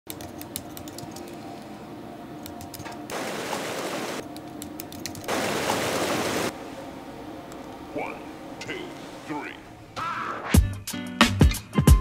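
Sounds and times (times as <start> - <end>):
steady low hum: 0.1 - 10.1
whitewater rushing: 5.3 - 6.6.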